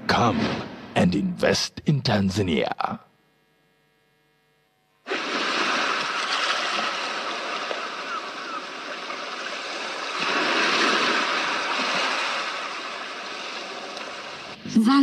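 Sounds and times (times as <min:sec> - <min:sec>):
sea water and waves rushing: 0:05.1 - 0:14.7.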